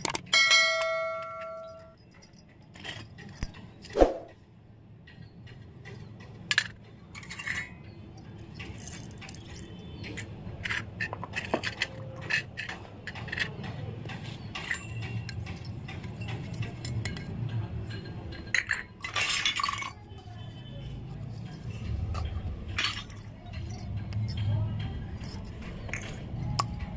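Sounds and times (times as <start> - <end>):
metallic clicks on concrete: 0.0 - 3.7, 23.4 - 26.9
small metal toys clinking: 0.0 - 3.9, 5.0 - 26.9.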